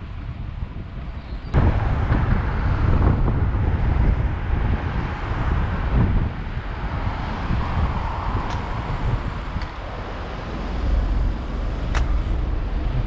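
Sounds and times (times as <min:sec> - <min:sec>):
low rumble of city traffic: 0:00.0 - 0:13.0
wind buffeting microphone: 0:00.0 - 0:13.0.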